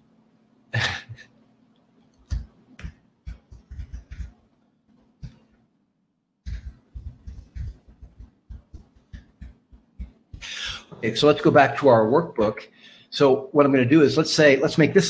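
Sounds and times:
typing on keyboard: 2.3 - 4.3, 6.5 - 10.5.

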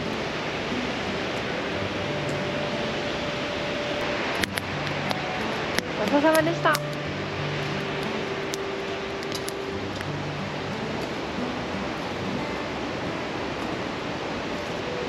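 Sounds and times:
river pouring over weir: 0.0 - 15.0
faint clicks: 4.3 - 7.0.

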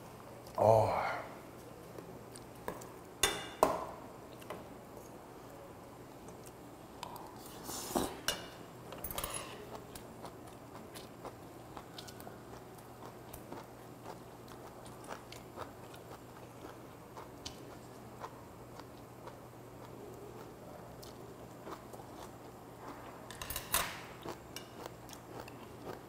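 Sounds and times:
close chewing: 9.5 - 23.1, 24.2 - 26.0.

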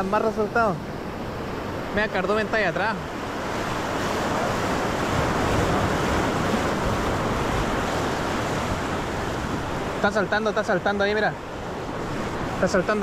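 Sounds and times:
waves breaking on rocks: 0.0 - 13.0
wind buffeting microphone: 3.0 - 10.1.

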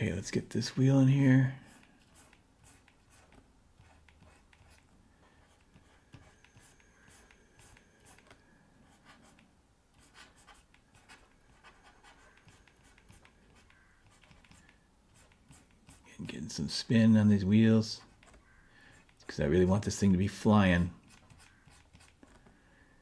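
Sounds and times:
stylus scratching drawing tablet: 1.6 - 9.4, 10.0 - 16.4, 20.8 - 22.4.

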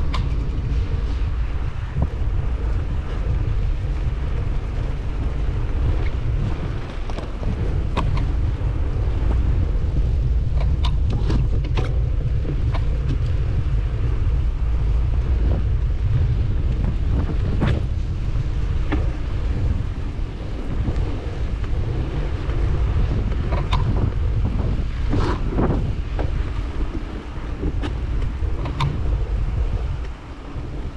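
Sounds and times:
wind buffeting microphone: 0.0 - 30.9
sharp clicks and knocks: 27.8 - 29.0.

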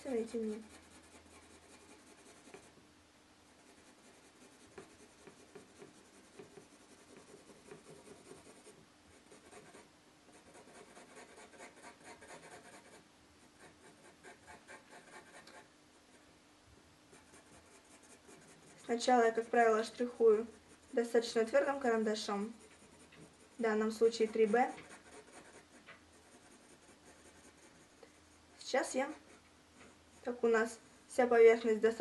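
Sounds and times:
pencil hatching on paper: 0.3 - 2.7, 3.6 - 13.0, 22.1 - 28.0.

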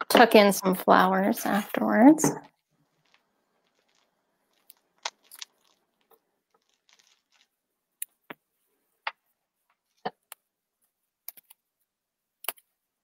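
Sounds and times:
soft rustling: 2.8 - 7.6.

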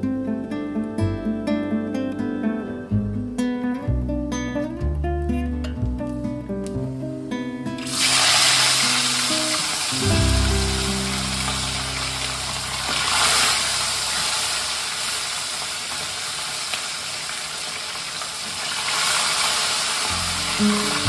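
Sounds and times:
fish sizzling in hot oil: 7.8 - 21.0.

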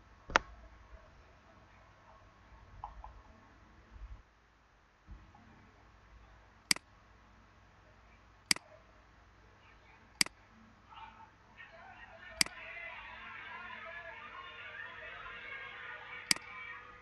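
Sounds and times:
muffled background sound: 0.0 - 4.3, 5.0 - 17.0
computer mouse clicks: 16.3 - 16.5.

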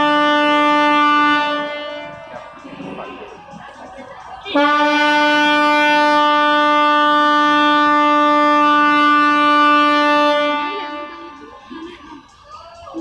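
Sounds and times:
ship's horn blast: 0.0 - 3.0, 4.5 - 11.4.

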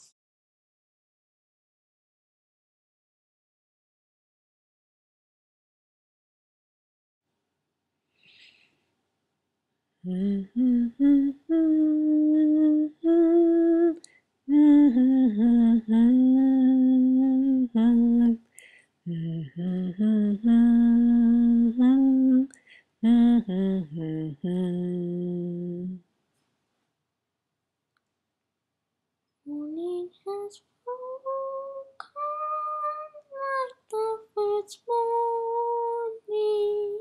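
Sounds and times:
person humming a tune: 10.0 - 18.4, 19.1 - 26.0, 29.5 - 37.0.

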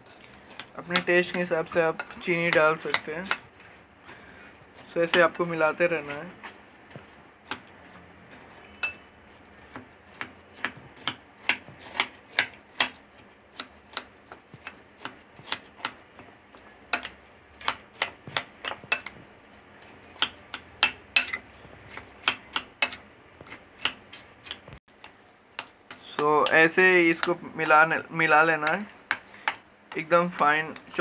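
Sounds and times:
metal spoon clinking on glass bowl: 8.8 - 9.1.

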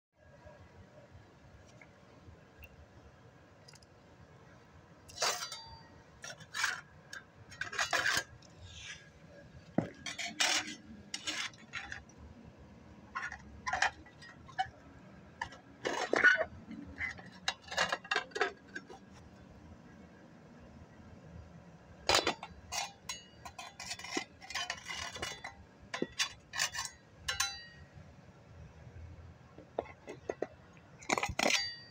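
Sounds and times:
tool scraping on concrete floor: 7.6 - 12.1.

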